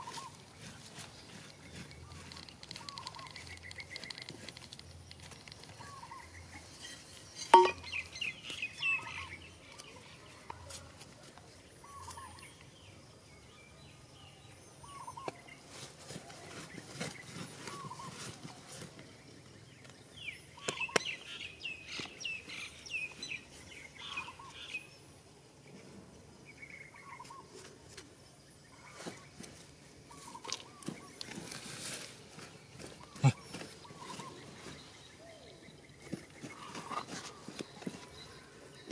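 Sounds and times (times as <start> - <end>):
hands scraping dry soil: 0.0 - 8.8, 15.2 - 19.2, 28.8 - 35.2, 36.0 - 38.9
birds chirping quickly: 1.0 - 6.6, 32.6 - 38.9.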